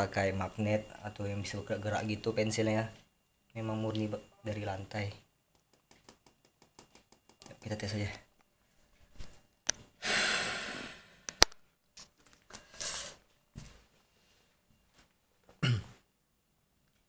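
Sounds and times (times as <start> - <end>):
breathing close to microphone: 10.0 - 11.3.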